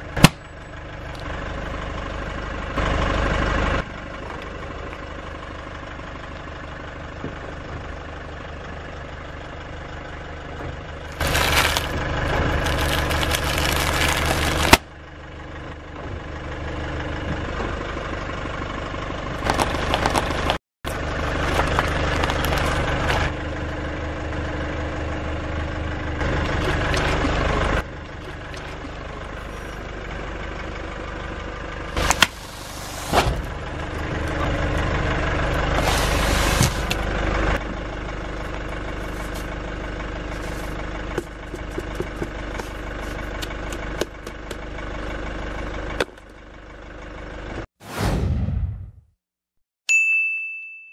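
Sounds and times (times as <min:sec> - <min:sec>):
car engine idling: 0:00.0 - 0:47.7
tyre crushing objects: 0:11.2 - 0:14.8.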